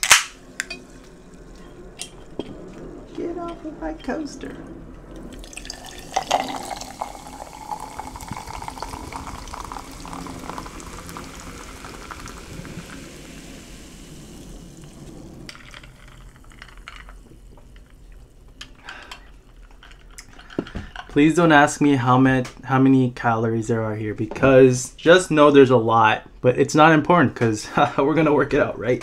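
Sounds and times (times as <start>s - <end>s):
fizzy soda pouring into a mug: 5.2s - 19.6s.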